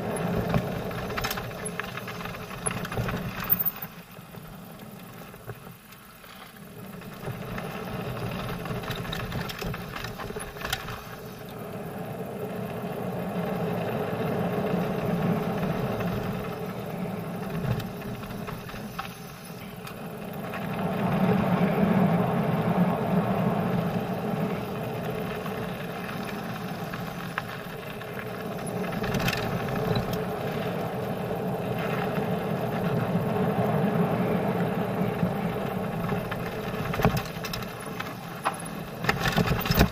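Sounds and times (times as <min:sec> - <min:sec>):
bike rattling: 0:00.0 - 0:39.9
tyres rumbling on gravel: 0:00.0 - 0:39.9
wind rushing over microphone: 0:20.1 - 0:37.9.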